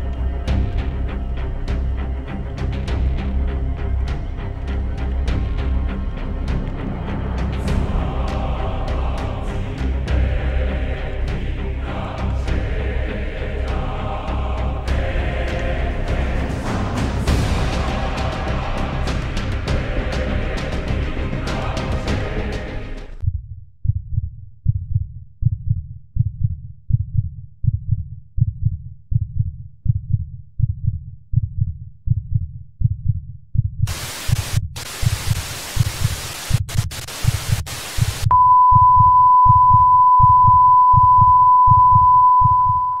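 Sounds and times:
low heartbeat thumps: 0:23.2 - 0:43.0
tv static hiss: 0:33.9 - 0:38.3.

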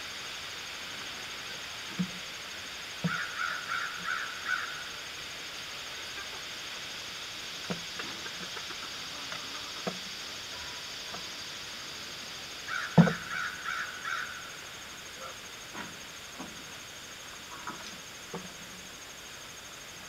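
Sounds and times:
steady high hiss: 0:00.0 - 0:20.0
bird calling harshly: 0:03.0 - 0:05.0, 0:12.4 - 0:14.6.

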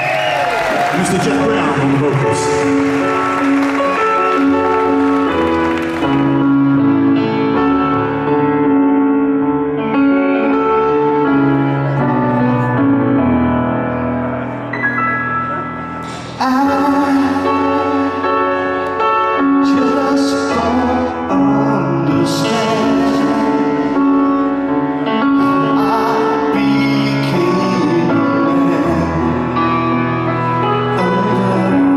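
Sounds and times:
rock band playing: 0:00.0 - 0:19.6
keyboard chords: 0:00.0 - 0:31.9
person singing: 0:16.0 - 0:31.9.

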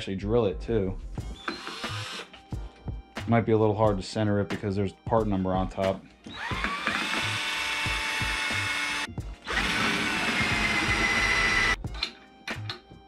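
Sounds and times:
power drill whining: 0:01.3 - 0:02.3, 0:06.3 - 0:11.8.

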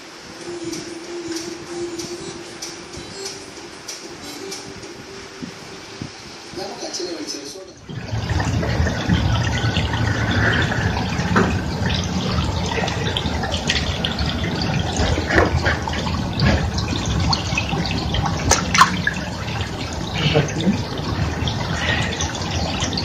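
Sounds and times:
water drips: 0:07.8 - 0:23.0
water running and splashing: 0:07.8 - 0:23.0.

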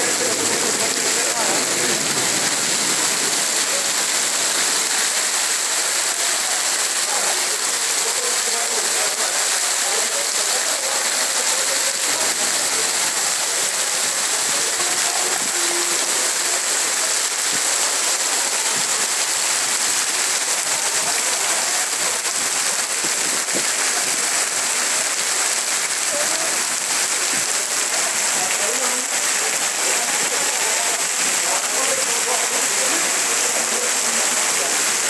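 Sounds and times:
heavy rain on paving and tables: 0:00.0 - 0:35.0.

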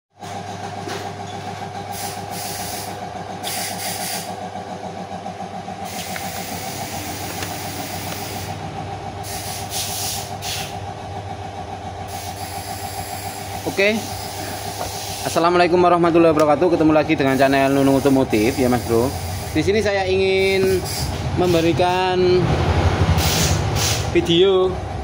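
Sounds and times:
machine humming: 0:00.3 - 0:25.0.

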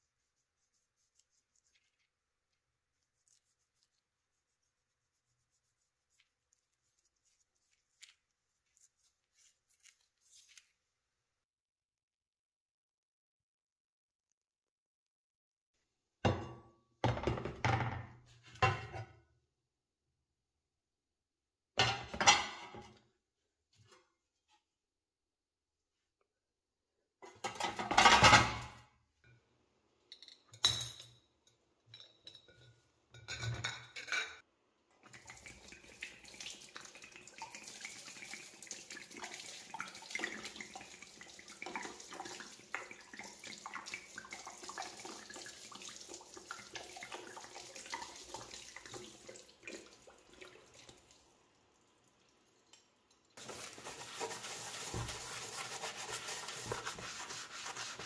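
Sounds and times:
running water: 0:35.0 - 0:58.0.

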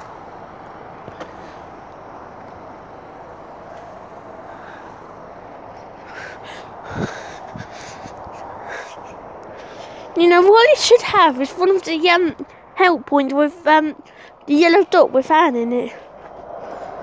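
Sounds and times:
wind on microphone: 0:06.4 - 0:09.2.

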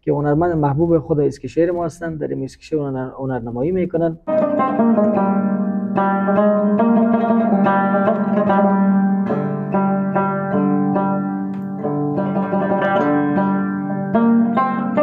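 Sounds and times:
plucked string instrument melody: 0:04.2 - 0:15.0.

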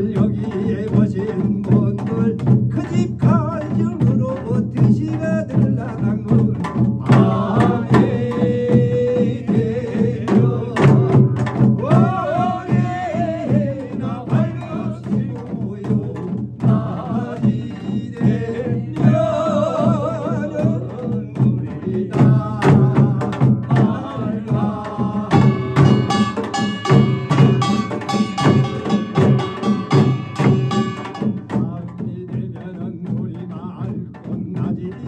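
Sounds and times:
barrel drums beating: 0:00.0 - 0:35.0
man chanting with vibrato: 0:11.8 - 0:33.0
brass hand gong ringing strikes: 0:25.4 - 0:31.4.

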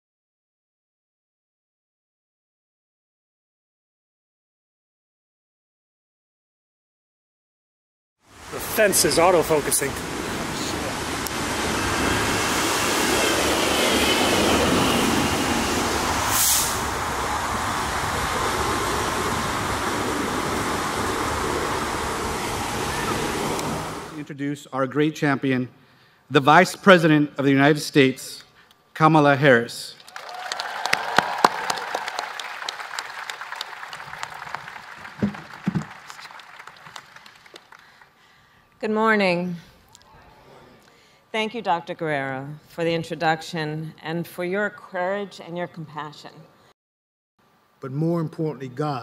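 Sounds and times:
large vehicle passing: 0:08.5 - 0:24.2
short sharp hiss: 0:16.2 - 0:17.0
audience applauding: 0:30.0 - 0:38.3.

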